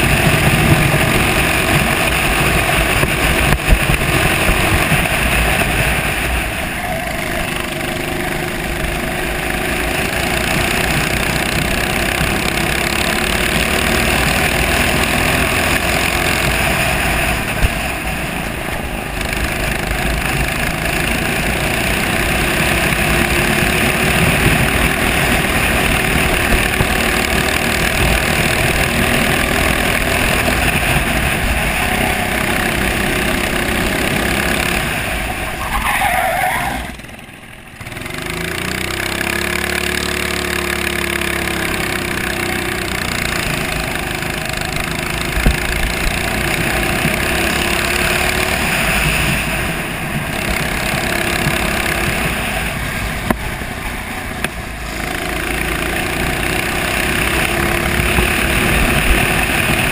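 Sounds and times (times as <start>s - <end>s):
racing kart engine: 0.0s - 59.9s.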